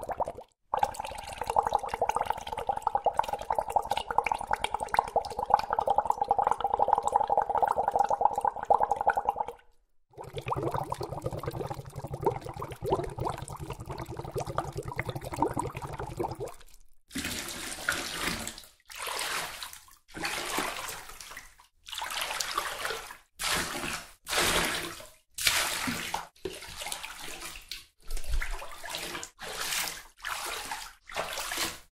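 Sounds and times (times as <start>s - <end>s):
water bubbling and gurgling: 0.0s - 17.0s
short water splashes: 17.1s - 31.9s.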